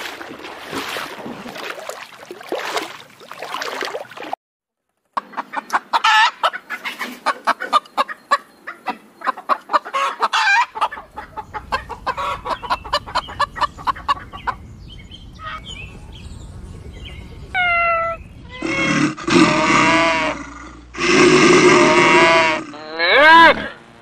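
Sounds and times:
chickens clucking: 5.2s - 19.1s
loud chicken call: 6.0s - 6.5s, 9.8s - 14.6s, 17.5s - 23.8s.

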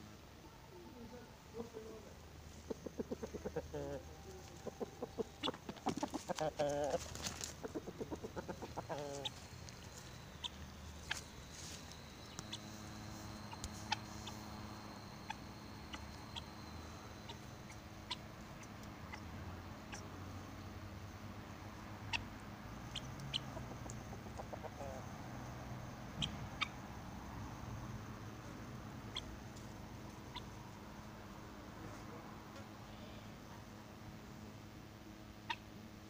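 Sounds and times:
faint steady hum: 0.0s - 36.0s
chickens clucking: 1.6s - 20.7s, 22.0s - 31.2s
small ticks: 4.4s - 20.1s, 22.8s - 24.5s.

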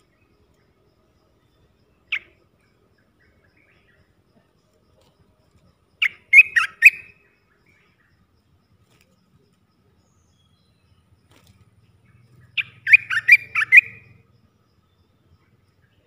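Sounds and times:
bird singing liquid notes: 11.8s - 14.2s.

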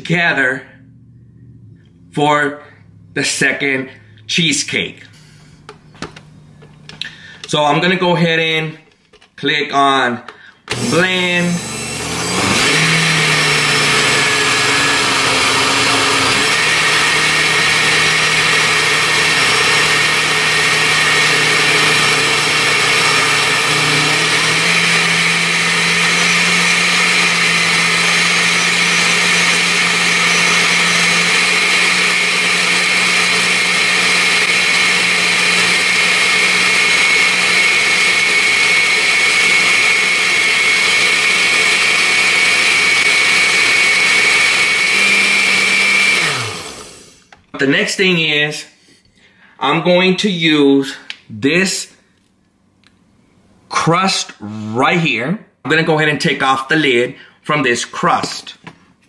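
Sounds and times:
blender motor running: 10.7s - 47.3s.

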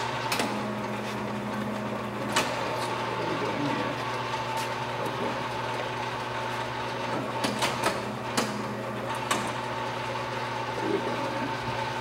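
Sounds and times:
lathe humming and whining: 0.0s - 12.0s
lathe controls clicking and knocking: 3.9s - 10.1s.

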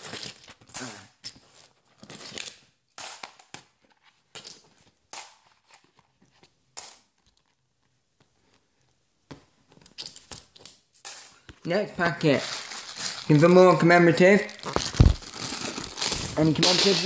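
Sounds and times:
coins clinking into a pile: 0.0s - 3.6s, 9.9s - 11.4s, 15.9s - 17.0s.

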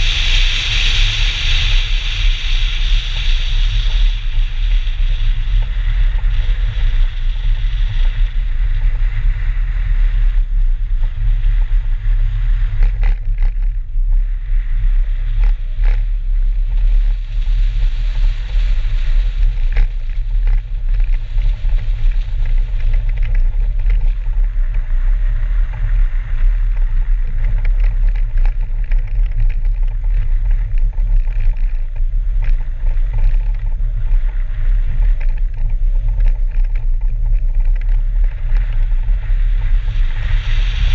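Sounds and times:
car engine and tyre noise: 0.0s - 40.9s
wind rumble on microphone: 0.0s - 40.9s.

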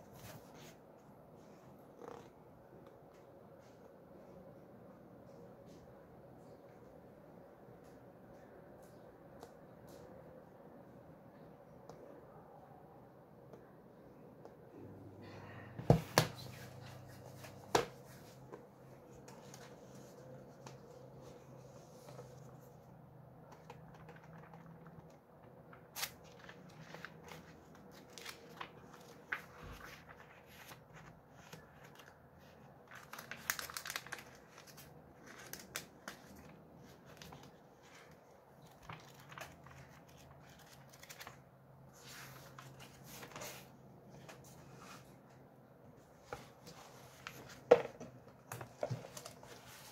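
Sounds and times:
book pages turning: 1.8s - 2.4s, 15.9s - 45.2s, 46.2s - 49.9s.

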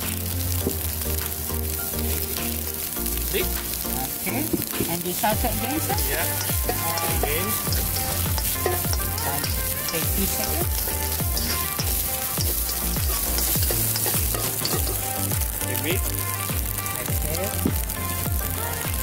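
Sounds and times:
food sizzling in a wok: 0.0s - 19.0s
spatula stirring in a wok: 4.7s - 16.4s.

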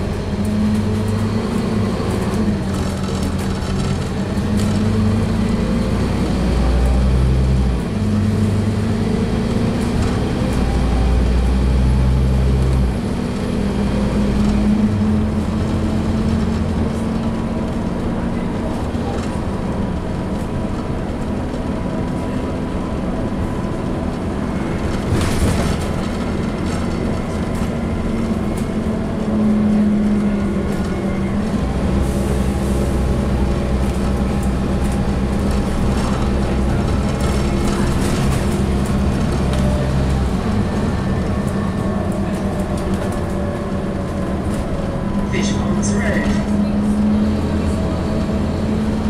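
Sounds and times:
bus engine hum and whine: 0.0s - 49.0s
low engine drone: 0.0s - 49.0s.

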